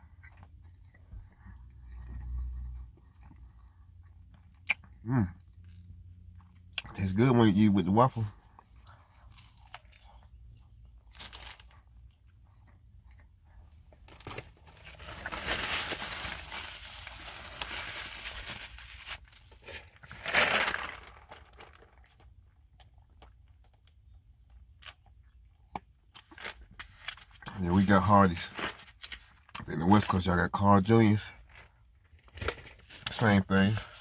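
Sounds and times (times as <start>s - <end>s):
paper napkin rustling and crumpling: 14.7s - 21.2s.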